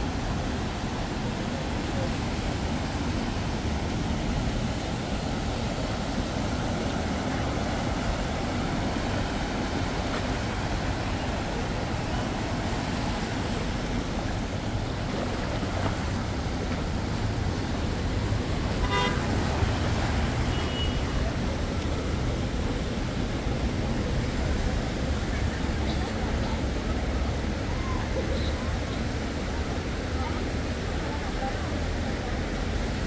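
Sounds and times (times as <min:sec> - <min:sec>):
road traffic rumble: 0:00.0 - 0:33.0
vehicle horn toot: 0:18.8 - 0:19.3, 0:20.4 - 0:21.1.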